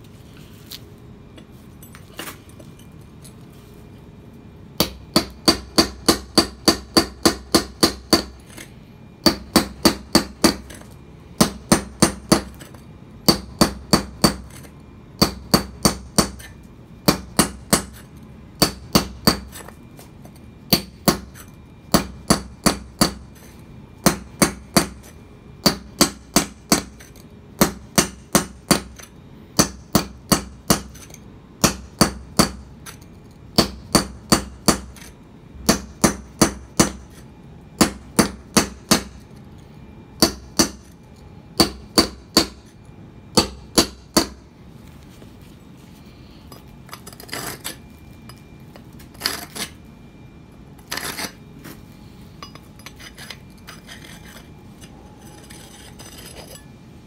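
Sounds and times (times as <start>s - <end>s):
hammer striking chisel on concrete: 4.8s - 8.6s, 9.2s - 12.7s.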